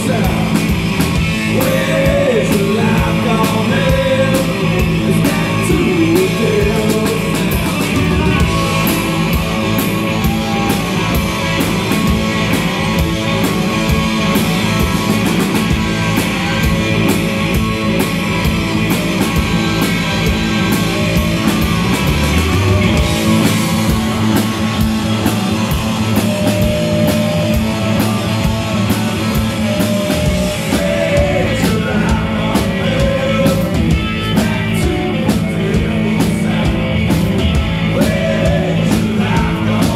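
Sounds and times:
man singing: 0.0 - 0.7, 1.4 - 9.2, 30.0 - 39.9
bass guitar: 0.0 - 39.9
distorted electric guitar: 0.0 - 39.9
drums: 0.0 - 39.9.

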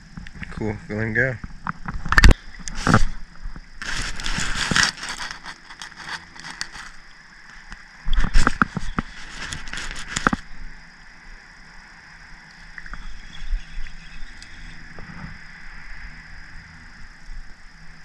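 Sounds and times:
fishing rod rustling scrape: 2.7 - 3.2, 3.8 - 10.5
reel clicks and knocks: 8.1 - 10.4.

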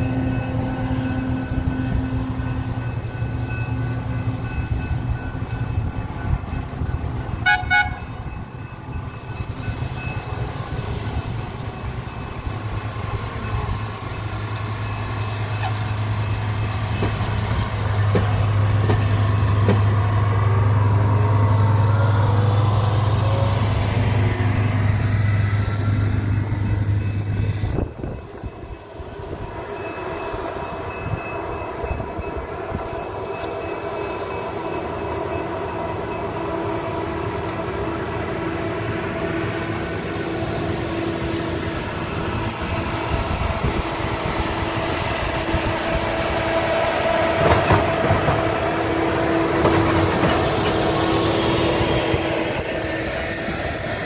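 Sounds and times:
diesel engine of rail machine: 0.0 - 54.0.

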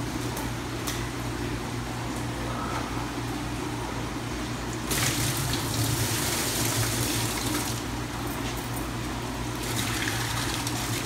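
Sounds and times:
steady low hum: 0.0 - 11.0
water pouring into bucket: 4.9 - 7.9, 9.6 - 11.0.

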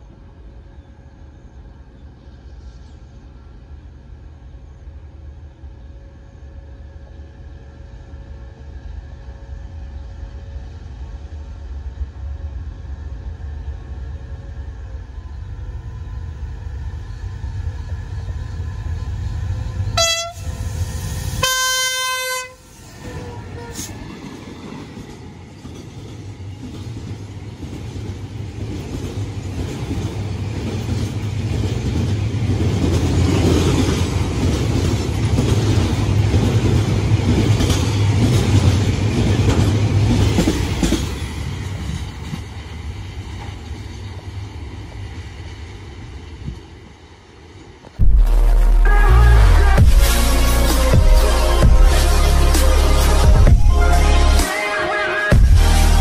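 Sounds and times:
freight train rumbling: 0.0 - 54.6, 55.3 - 56.0
locomotive horn blasts: 20.0 - 20.5, 21.4 - 23.9, 48.7 - 55.4.

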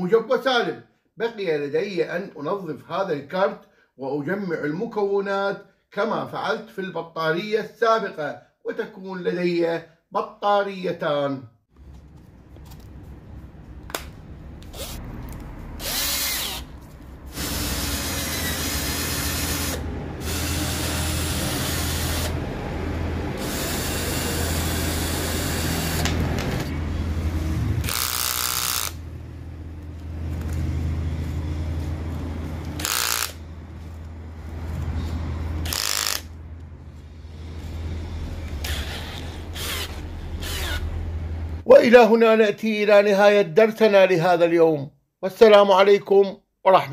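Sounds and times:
cordless drill motor running: 14.7 - 15.0, 15.8 - 16.7, 17.3 - 22.4, 23.3 - 26.7, 27.8 - 29.0, 32.6 - 33.4, 35.6 - 36.3, 38.6 - 41.0.

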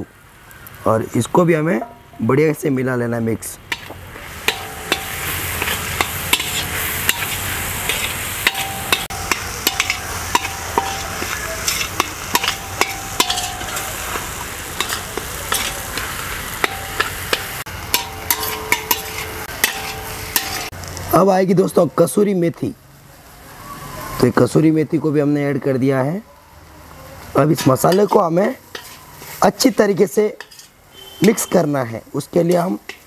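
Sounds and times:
food sizzling: 0.0 - 33.0
utensil scraping a pan: 3.7 - 20.7, 27.6 - 29.7, 30.4 - 31.6.

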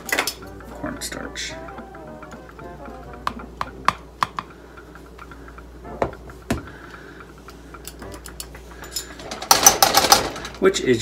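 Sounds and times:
metal spoon tapping plastic tub: 3.2 - 4.5.

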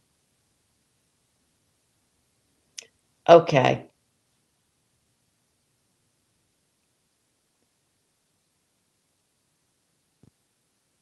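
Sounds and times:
faint room hiss: 0.0 - 11.0.

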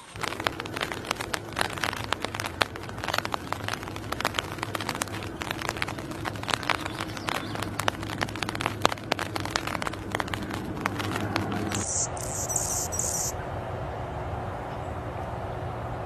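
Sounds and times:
birds chirping: 0.0 - 13.4.

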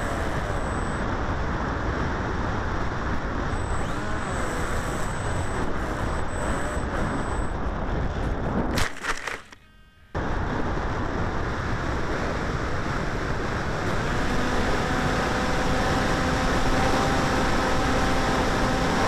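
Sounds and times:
motor and propeller whine: 0.0 - 19.0
sharp loud crackle: 8.7 - 9.6
wind rush: 10.2 - 15.2.

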